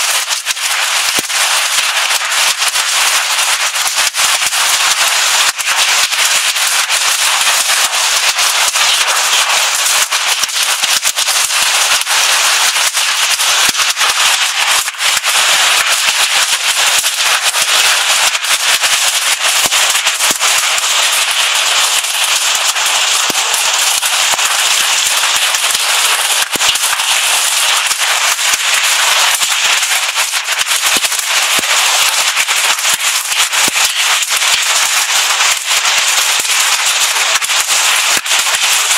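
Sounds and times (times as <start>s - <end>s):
hailstones clattering: 0.0s - 38.9s
heavy rain hiss: 14.0s - 38.9s.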